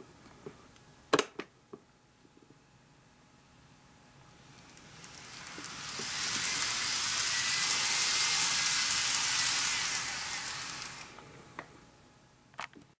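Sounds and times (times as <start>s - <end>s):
faint motor whine: 0.0s - 12.9s
model train wheels rattling on rail: 4.5s - 11.2s.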